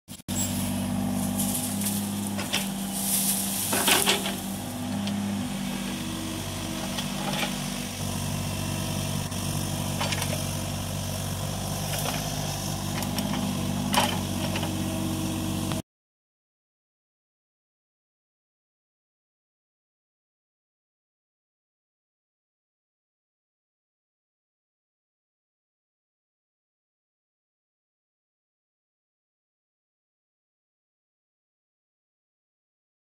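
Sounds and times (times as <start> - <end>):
excavator diesel engine: 0.1 - 15.8
bucket tearing through roots: 1.3 - 4.8.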